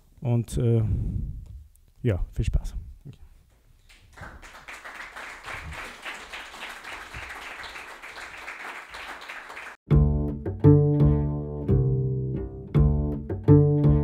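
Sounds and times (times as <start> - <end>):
audience applauding: 3.9 - 9.8.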